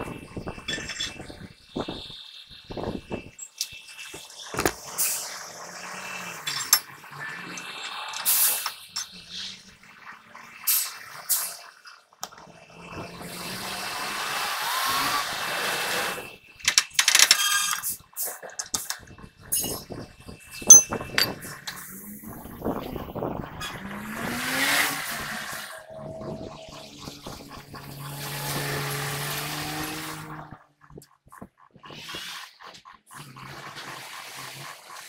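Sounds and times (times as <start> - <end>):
metal clinks and knocks: 19.5 - 19.8, 20.7 - 21.5
metal shaft scraping: 20.7 - 21.5, 23.5 - 30.4.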